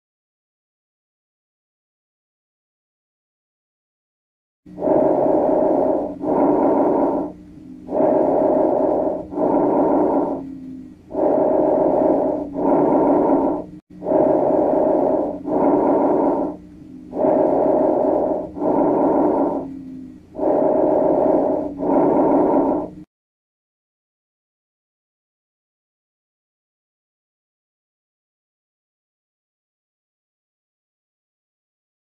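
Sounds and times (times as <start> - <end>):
breath sounds through stethoscope: 4.7 - 23.1.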